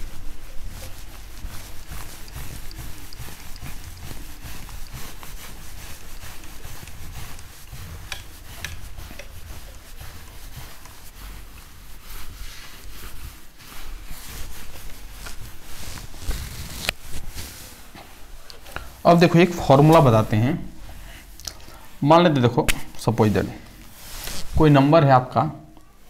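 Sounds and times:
eraser rubbing on whiteboard: 0.0 - 18.0.

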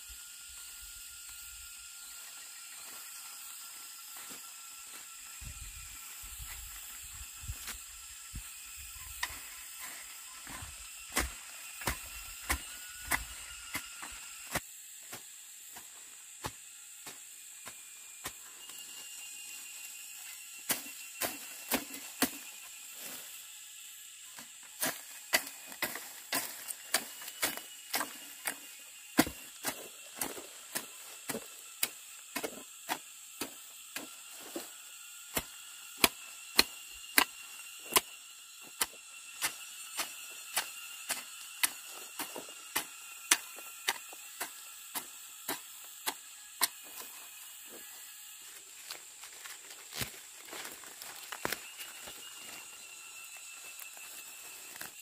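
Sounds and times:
high-pitched hum: 0.0 - 55.0.

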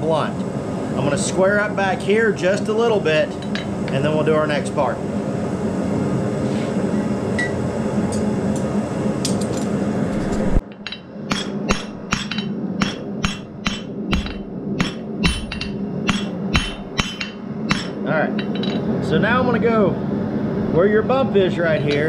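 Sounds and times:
steady hum: 0.0 - 22.0
hammer striking steel on anvil: 10.7 - 18.8.

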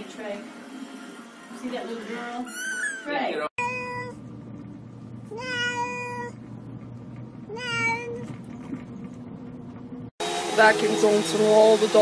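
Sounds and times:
cat meowing: 2.4 - 4.2, 5.3 - 6.4, 7.5 - 8.3.

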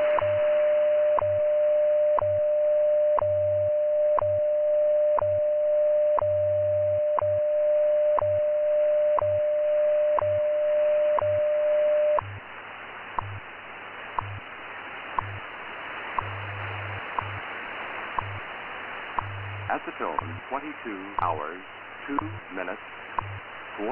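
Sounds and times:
steady radio tone: 0.0 - 12.4, 16.2 - 18.6, 19.2 - 23.9
low pulsing hum: 6.2 - 12.5, 13.2 - 13.5, 14.2 - 14.5, 15.2 - 15.5, 16.2 - 17.6, 18.2 - 18.5, 19.2 - 20.5, 23.2 - 23.6
shortwave hiss: 12.2 - 23.9
radio ticks: 13.2 - 13.4, 14.2 - 14.4, 15.2 - 15.4, 16.2 - 17.4, 18.2 - 18.4, 19.2 - 21.4, 22.1 - 23.5.

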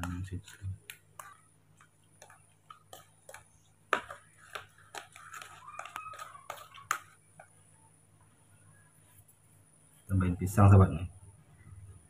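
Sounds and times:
metal spoon scraping plastic bowl: 0.0 - 7.5.

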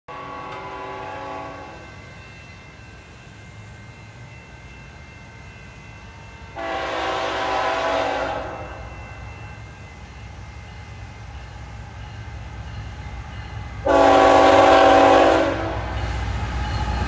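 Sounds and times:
locomotive air horn blasts: 0.1 - 1.8, 6.6 - 8.9, 13.8 - 15.9.

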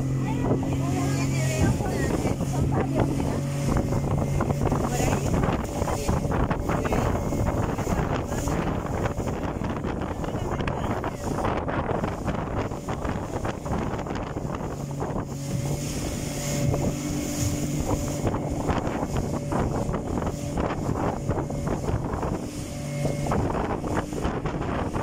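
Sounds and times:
motorboat engine humming: 0.0 - 25.0
wind buffeting microphone: 0.0 - 25.0.

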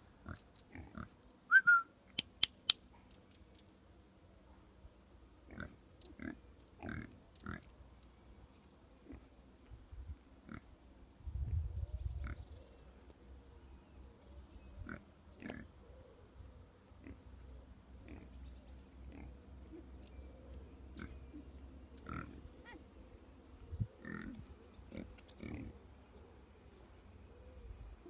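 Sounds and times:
faint high chirp: 1.5 - 3.7
pig grunting: 24.0 - 25.8.

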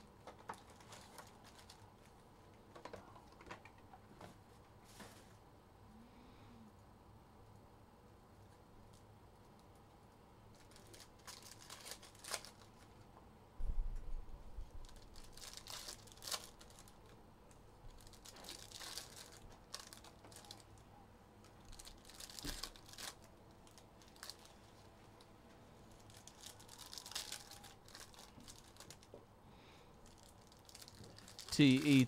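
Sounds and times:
card wrappers crinkling and tearing: 0.3 - 2.2, 10.5 - 12.9, 14.8 - 17.2, 17.9 - 20.8, 21.4 - 25.2, 25.8 - 29.2, 30.0 - 32.0.

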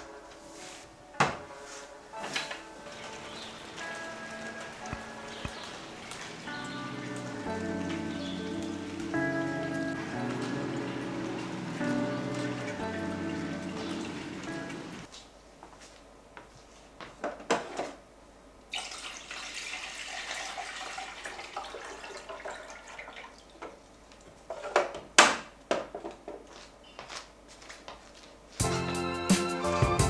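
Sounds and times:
water running into a jug: 18.7 - 23.8.

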